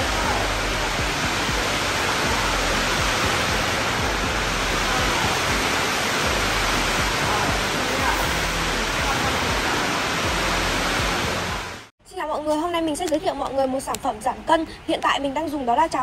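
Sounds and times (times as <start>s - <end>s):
steady rushing noise: 0.0s - 11.9s.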